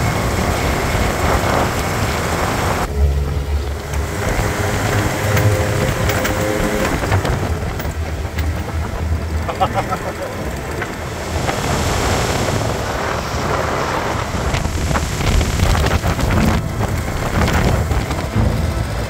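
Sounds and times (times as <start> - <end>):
car engine driving: 0.0 - 19.0
wind rushing over microphone: 0.0 - 19.0.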